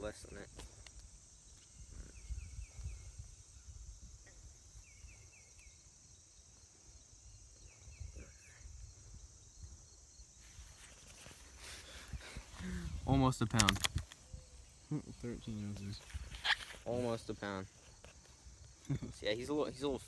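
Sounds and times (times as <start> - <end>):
insects droning: 0.0 - 20.0
wind rumble on microphone: 1.7 - 5.2.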